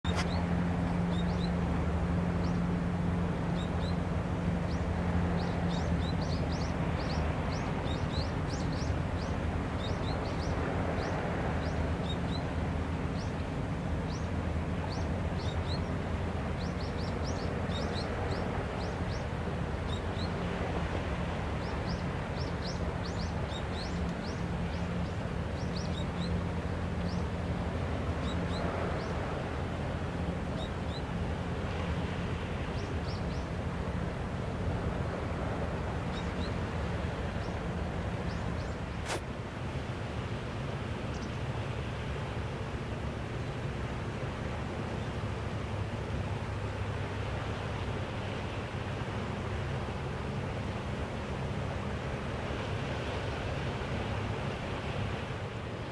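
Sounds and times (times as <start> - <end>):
small birds chirping: 0.0 - 1.6, 2.4 - 2.7, 3.5 - 20.7, 21.6 - 27.4, 32.7 - 33.5, 36.0 - 39.2
low engine hum: 0.0 - 55.9.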